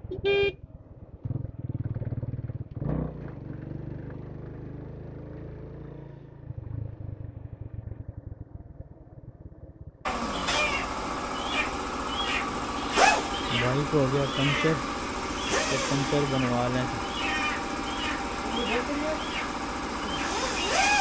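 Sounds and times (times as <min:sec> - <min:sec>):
motorcycle engine running: 0:00.0 - 0:21.0
workshop background noise: 0:12.8 - 0:21.0.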